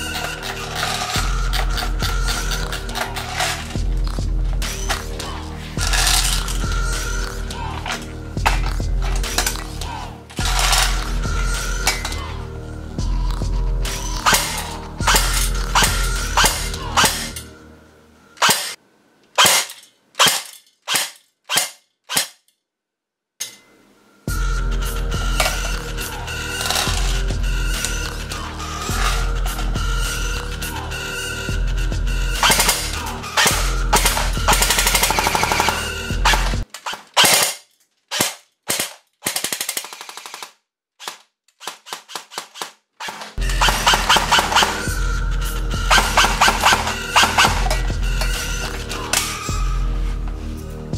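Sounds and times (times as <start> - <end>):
music: 0.0 - 18.8, 23.7 - 36.7, 43.4 - 50.9
airsoft rifle firing: 32.4 - 44.9, 45.9 - 47.8.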